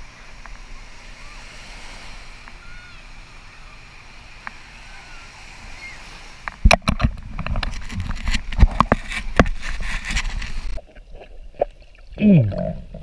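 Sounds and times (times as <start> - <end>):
water splashing against camera: 4.3 - 13.0.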